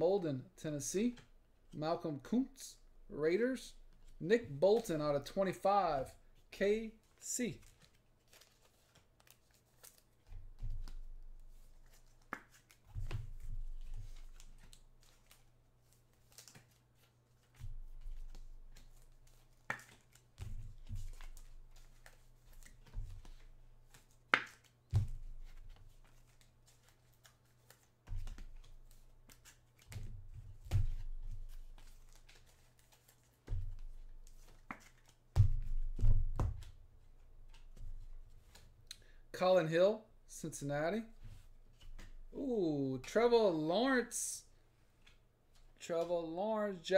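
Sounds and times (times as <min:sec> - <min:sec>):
trading cards handled: 0:06.2 - 0:39.2, 0:41.0 - 0:43.2, 0:44.9 - 0:46.1.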